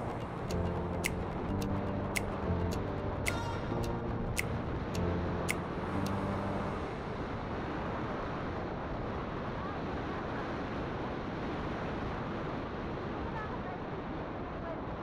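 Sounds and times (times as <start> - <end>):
road noise: 0.0 - 11.7.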